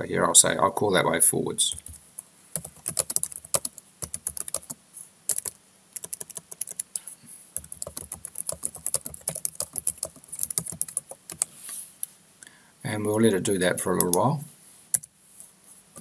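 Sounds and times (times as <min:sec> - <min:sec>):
typing on computer keyboard: 0:02.6 - 0:07.0, 0:07.6 - 0:11.5.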